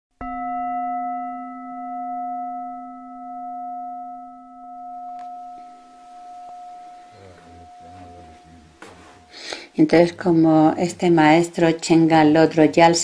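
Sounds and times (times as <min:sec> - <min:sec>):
bell ringing: 0:00.3 - 0:09.6.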